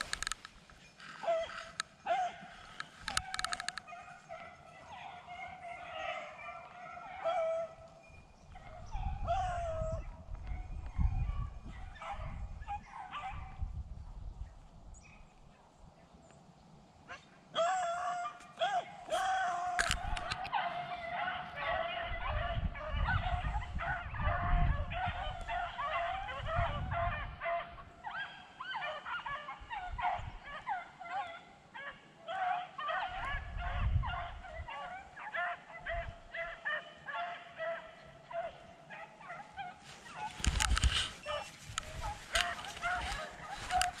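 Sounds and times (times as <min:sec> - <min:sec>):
dogs baying: 0:01.0 - 0:08.0, 0:17.1 - 0:44.0.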